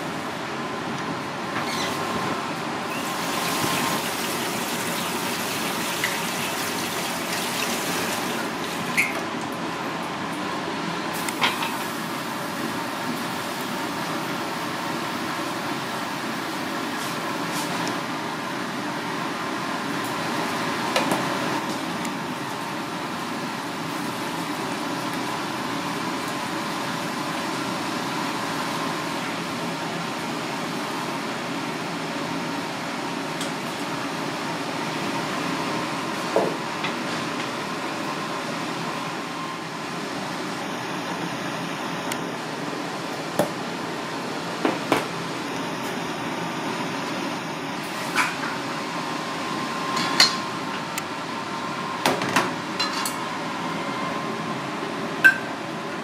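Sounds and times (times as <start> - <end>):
tap water gushing into steel bowl: 2.9 - 9.1.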